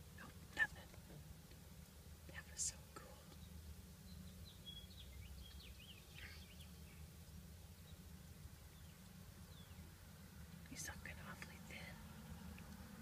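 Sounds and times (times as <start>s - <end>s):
steady low hum: 0.0s - 13.0s
faint bird chirps: 2.4s - 9.9s.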